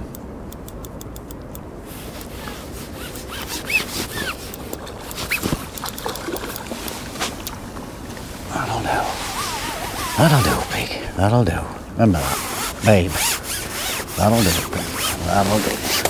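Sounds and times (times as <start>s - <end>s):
water sloshing and dripping: 3.7s - 8.5s
fish splashing and thrashing in water: 4.7s - 8.5s.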